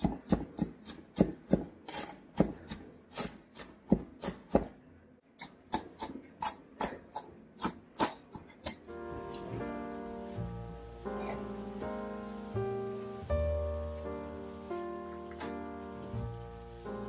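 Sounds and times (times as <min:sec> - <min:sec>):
knife chopping on wooden board: 0:00.0 - 0:04.7.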